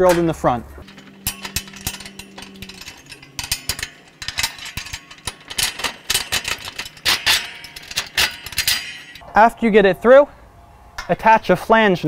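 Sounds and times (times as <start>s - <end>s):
metal hardware clicking and clinking: 0.0s - 9.2s.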